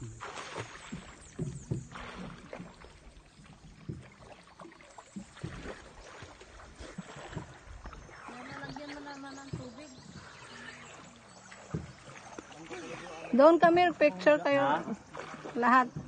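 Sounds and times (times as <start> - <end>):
soft knocks and splashes: 0.0 - 16.0
water lapping against boat: 0.0 - 16.0.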